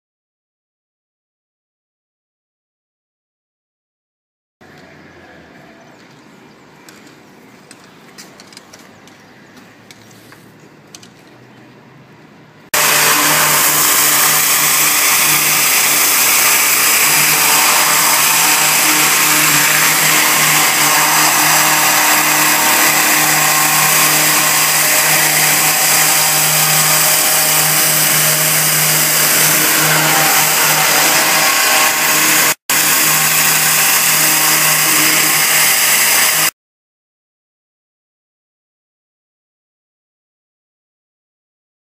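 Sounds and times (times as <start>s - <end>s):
high-pressure water jet hissing: 12.8s - 36.5s.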